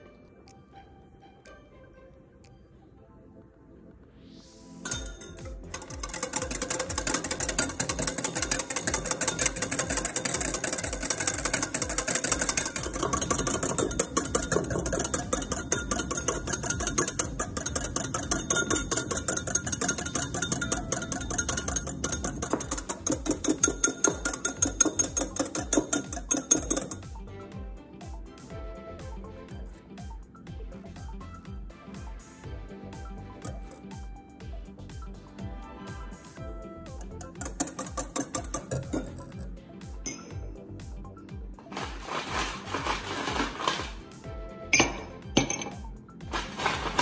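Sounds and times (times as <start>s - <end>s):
whisk beating in ceramic bowl: 4.9s - 27.1s, 36.9s - 39.5s.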